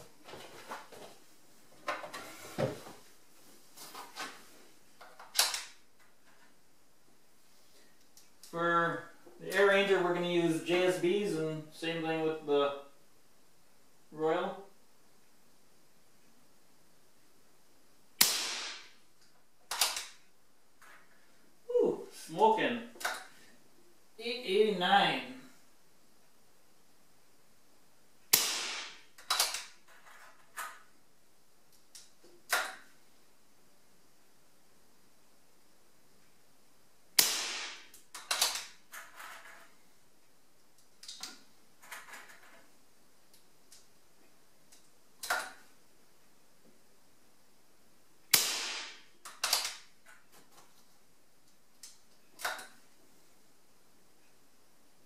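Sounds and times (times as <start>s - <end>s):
air rifle shot crack: 18.2s - 19.0s, 28.3s - 29.1s, 37.2s - 37.9s, 48.3s - 49.1s
rifle mechanism clacks and click: 19.7s - 20.2s, 29.2s - 30.3s, 38.2s - 39.6s, 49.2s - 49.9s.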